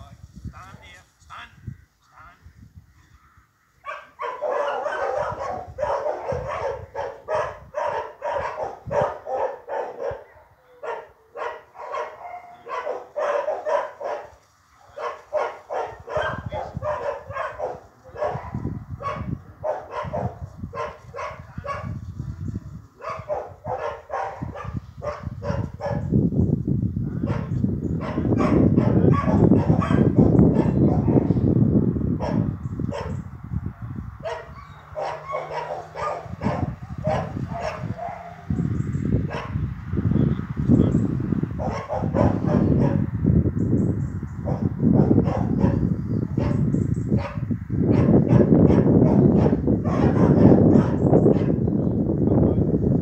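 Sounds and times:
dog barking: 3.8 - 22.0, 23.0 - 26.1, 27.2 - 31.4, 32.2 - 33.2, 34.2 - 39.6, 41.6 - 43.1, 44.4 - 51.6.

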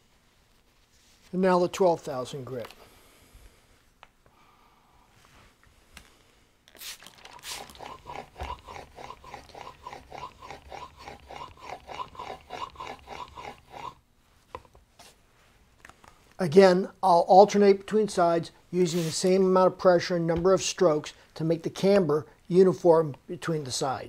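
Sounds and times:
plane blade rasping on waterstone: 7.4 - 14.0.

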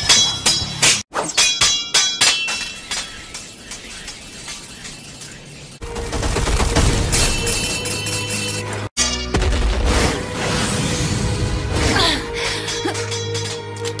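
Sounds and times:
swords clashing: 0.0 - 4.6, 12.5 - 14.0.

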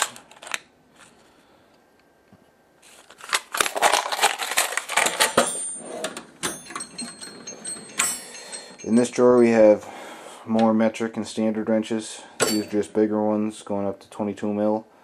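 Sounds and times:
metal wrenches clinking in plastic tray: 3.7 - 9.6, 12.4 - 12.9.

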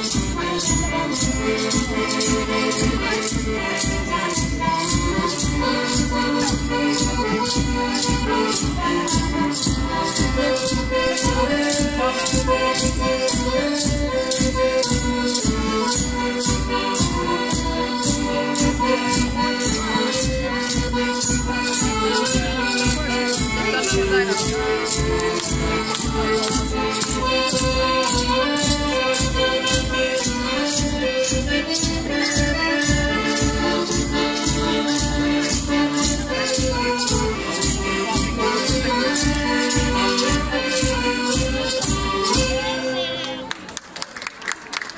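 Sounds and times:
rattle percussion: 0.0 - 42.9
plucked string instruments: 0.0 - 43.6.

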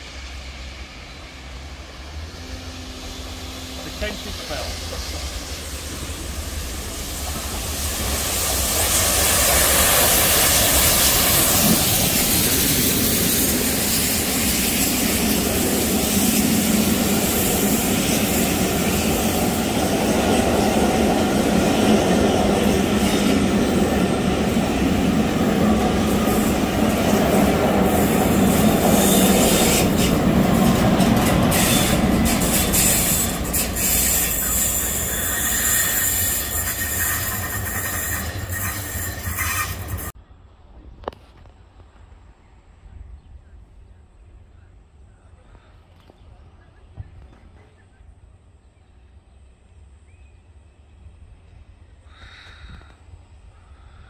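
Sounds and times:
train wheels clattering on rails: 3.8 - 40.2.

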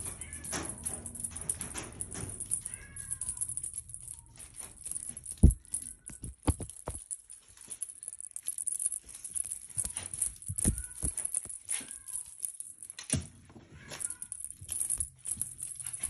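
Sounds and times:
paws scuffing and tapping phone: 4.8 - 7.9, 9.1 - 12.3
faint high squeaks: 9.7 - 12.4.

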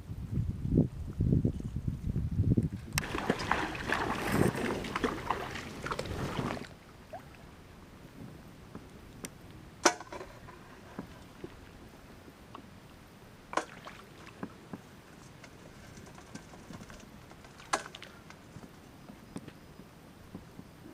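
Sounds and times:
shallow water splashing: 3.0 - 7.6, 13.5 - 14.5.

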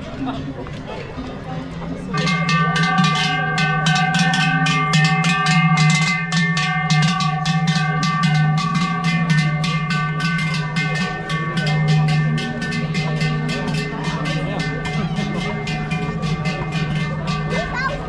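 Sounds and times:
cowbells clanging: 1.8 - 18.0.

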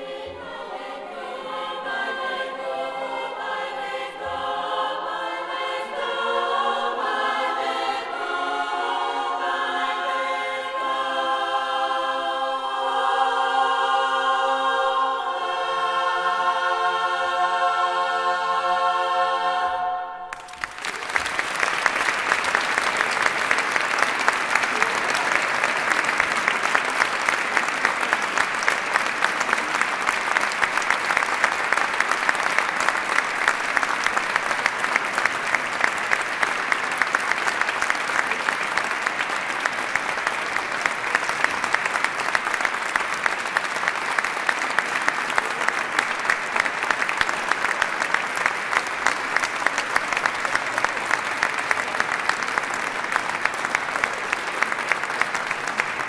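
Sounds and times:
audience applauding: 20.2 - 56.0.

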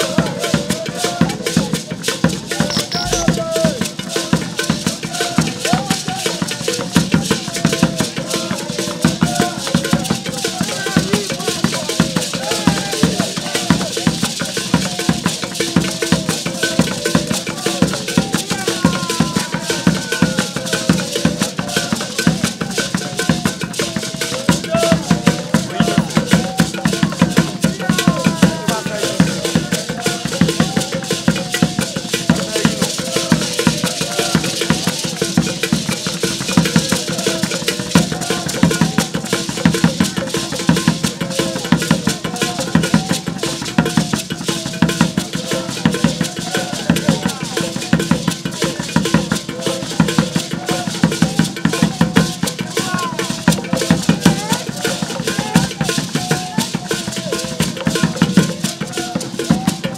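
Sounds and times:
voices singing: 0.0 - 59.9
hand drumming: 1.6 - 5.0
gourd rattles shaking: 31.1 - 39.2.

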